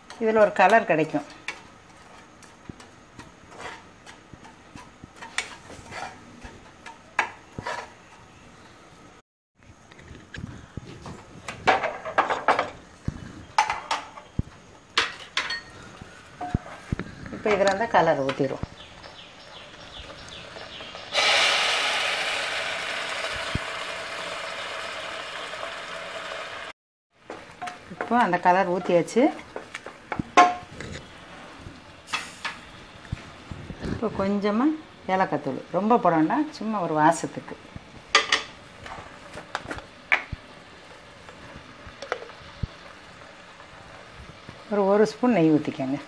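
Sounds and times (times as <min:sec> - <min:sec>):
sugar sizzling in hot milk: 0:19.8 - 0:26.7.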